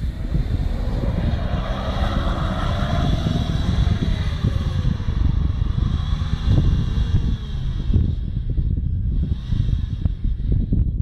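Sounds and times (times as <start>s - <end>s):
car engine revving hard: 0.0s - 8.2s.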